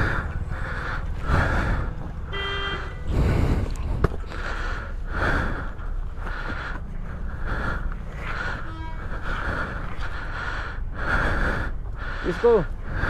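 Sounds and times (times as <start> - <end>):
low engine rumble: 0.0 - 13.0
person breathing hard: 0.0 - 13.0
short horn toot: 2.3 - 3.1, 8.6 - 9.1.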